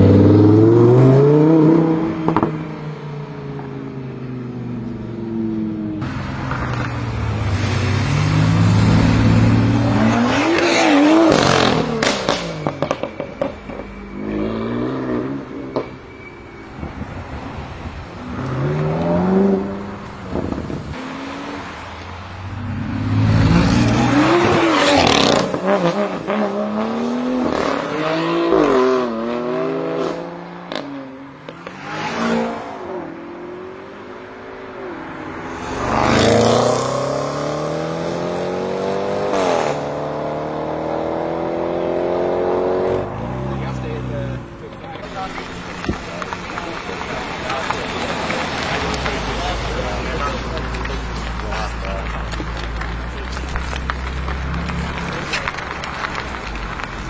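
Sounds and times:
car engines revving: 0.0 - 57.0
exhaust pops and crackles: 6.0 - 7.7, 43.2 - 57.0.

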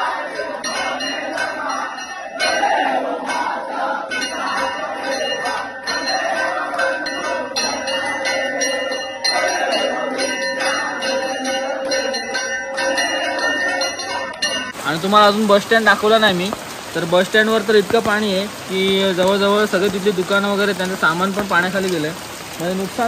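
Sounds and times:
crowd voices: 0.0 - 12.2
temple bell ringing: 0.4 - 15.8
hand-clapping: 5.4 - 6.0.

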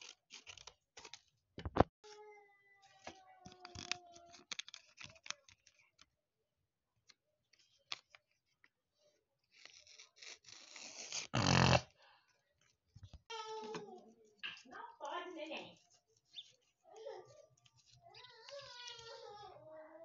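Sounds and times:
paper crinkling and rustling: 0.0 - 6.2, 7.0 - 11.2.

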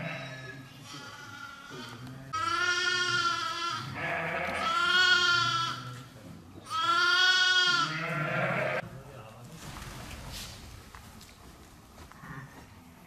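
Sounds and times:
sheep bleating: 0.0 - 6.0, 6.7 - 8.8.

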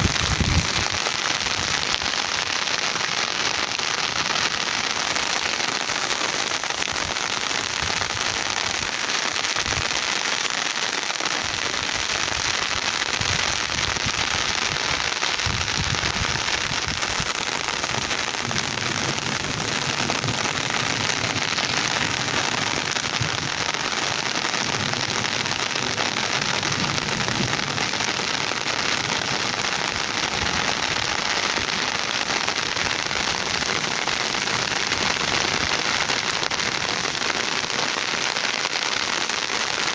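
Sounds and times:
rain falling: 0.0 - 39.9.

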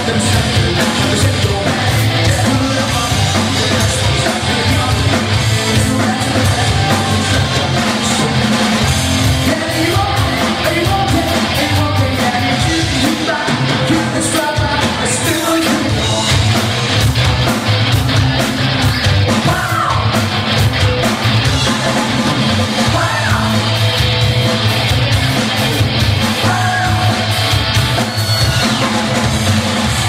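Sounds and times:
person singing: 0.0 - 8.6, 9.4 - 16.4, 26.3 - 27.4
bass guitar: 0.0 - 30.0
drum kit: 0.0 - 30.0
electric guitar: 0.0 - 30.0.

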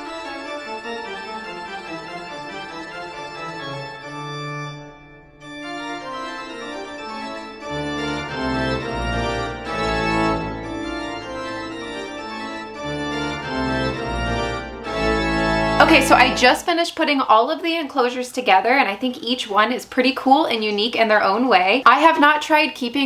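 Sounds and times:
spooky organ tune: 0.0 - 16.7
deep bass line: 7.7 - 16.6.

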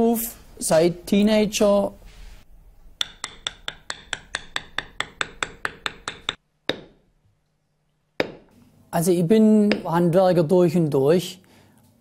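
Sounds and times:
mallet tapping metal stamp: 3.0 - 7.0, 8.2 - 8.5, 9.7 - 10.0.

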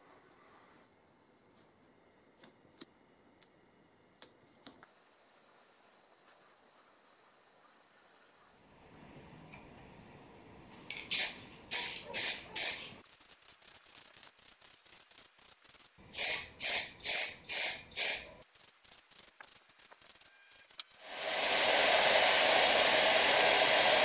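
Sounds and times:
spray can spraying: 11.1 - 21.1.

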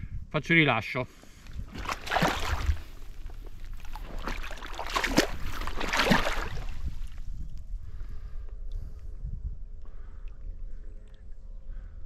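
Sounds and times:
wind rumble on microphone: 0.0 - 0.6, 1.2 - 12.0
water sloshing and splashing: 1.4 - 7.3.

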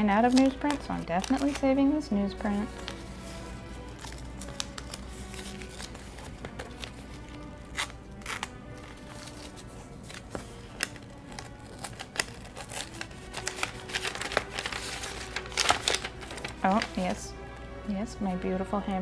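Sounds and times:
sharp paper crackles: 0.0 - 1.8, 2.5 - 17.2
paper rustling and crinkling: 0.0 - 17.2
quiet background music: 0.0 - 19.0
tape peeling: 2.7 - 16.9.

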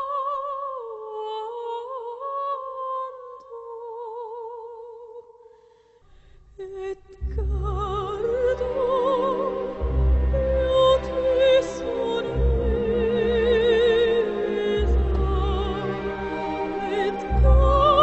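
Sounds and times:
orchestral film music: 7.2 - 18.0.

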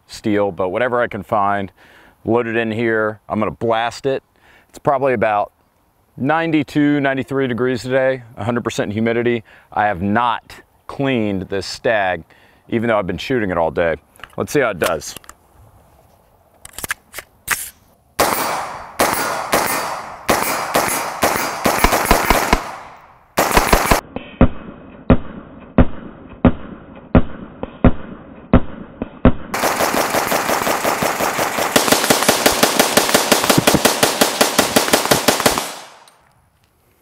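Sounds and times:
rifle shots: 18.2 - 24.1, 25.1 - 36.1.

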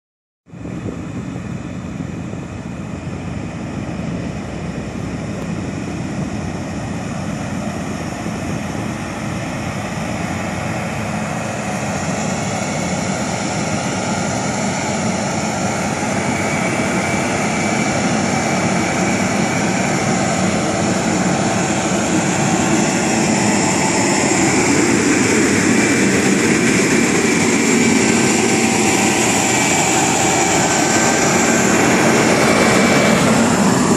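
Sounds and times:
diesel engine running under load: 0.5 - 33.9.

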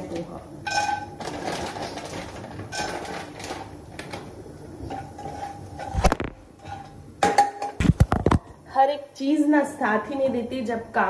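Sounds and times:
plastic packet rustling: 1.2 - 4.3.

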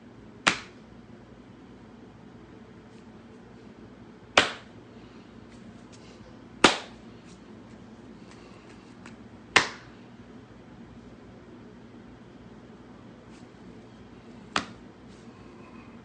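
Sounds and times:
sharp hand claps: 0.5 - 0.8, 4.4 - 4.7, 6.6 - 7.0, 9.0 - 9.9, 14.5 - 14.8.

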